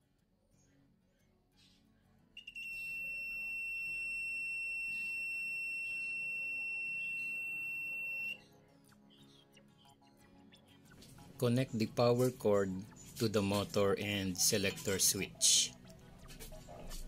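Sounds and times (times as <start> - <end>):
soft background music: 0.0 - 17.0
multimeter high-pitched beep: 2.4 - 8.5.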